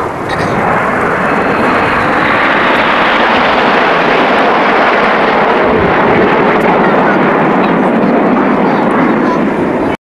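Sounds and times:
jet roar overhead: 0.0s - 10.0s.

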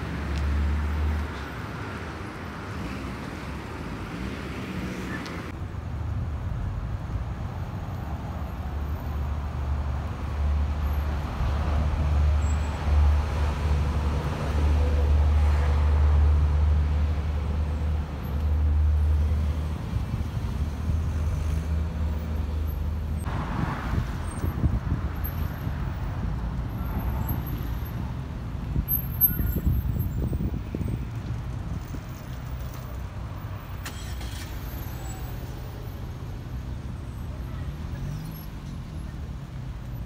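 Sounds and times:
traffic hiss: 31.8s - 40.0s.

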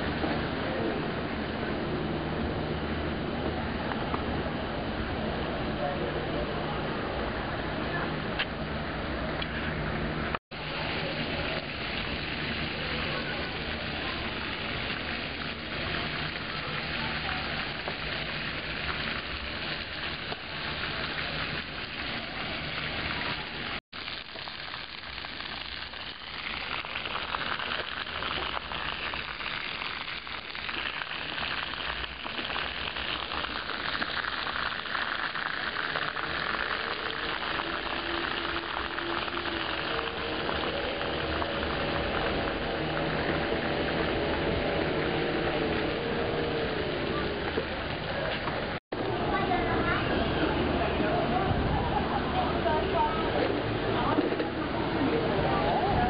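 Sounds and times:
steady hissing noise: 0.0s - 56.0s.

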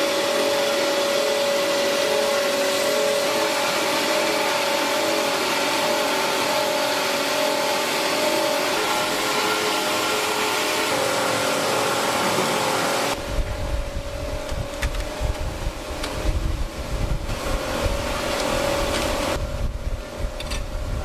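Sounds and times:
machinery hiss and hum: 0.0s - 21.0s
machinery low rumble: 13.2s - 21.0s.

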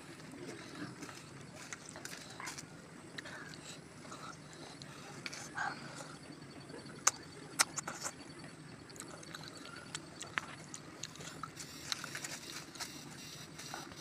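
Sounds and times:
low background noise: 0.0s - 14.0s
wet lip-smacking and chewing: 7.0s - 8.2s, 9.0s - 12.2s.

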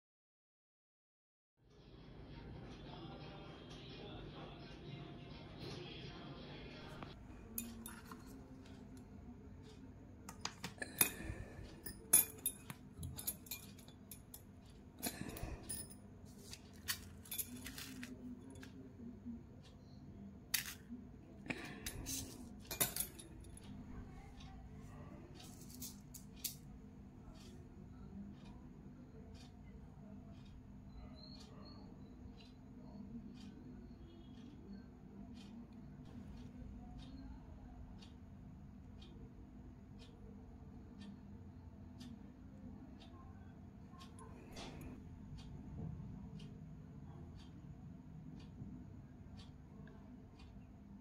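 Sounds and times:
metal beads clinking on steel plate: 7.4s - 8.8s, 10.3s - 18.7s, 20.5s - 20.8s, 21.5s - 23.9s, 25.4s - 26.6s.

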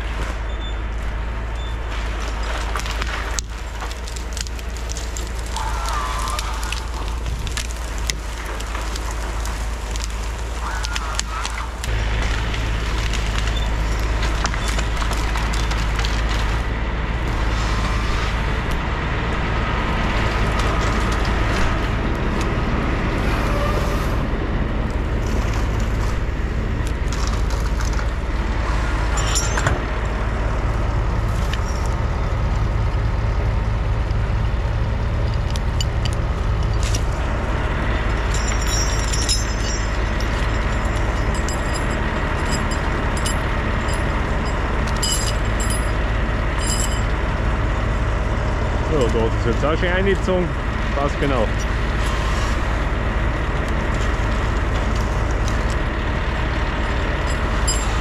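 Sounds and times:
heavy diesel engine running: 0.0s - 58.0s
sharp clicks and cracks: 1.9s - 17.4s, 20.2s - 22.6s, 24.9s - 28.4s, 31.3s - 37.4s, 38.0s - 46.0s, 53.4s - 58.0s.

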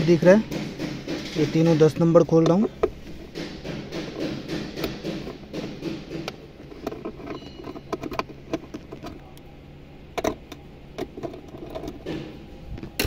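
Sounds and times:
bolts clicking and knocking: 0.0s - 9.5s, 10.1s - 13.0s
low hum: 6.3s - 13.0s.

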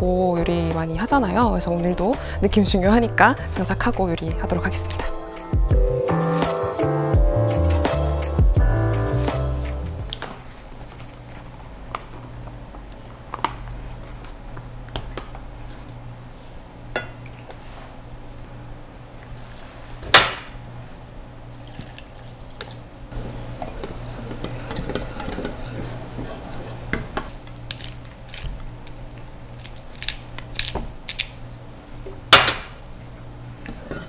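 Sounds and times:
whisk stirring batter: 23.2s - 27.4s.

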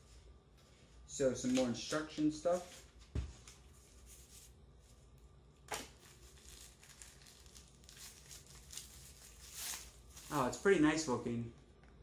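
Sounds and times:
faint handling sounds: 0.0s - 10.7s
packaging rustle: 5.7s - 10.6s.

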